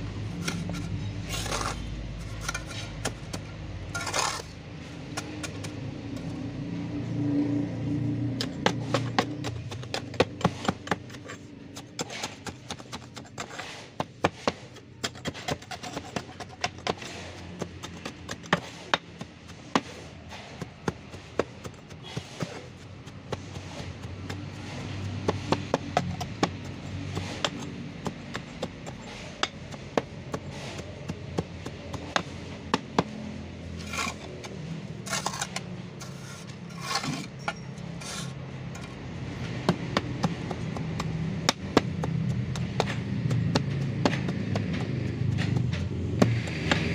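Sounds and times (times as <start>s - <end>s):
hand tamper ramming gravel mix: 0.3s - 6.4s, 8.4s - 46.9s
tamper scraping strokes: 35.1s - 38.9s.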